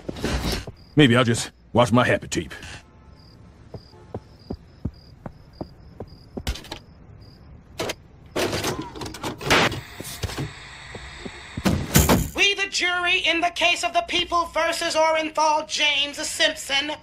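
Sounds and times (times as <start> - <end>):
cricket chirping: 0.2 - 2.2, 2.9 - 8.6.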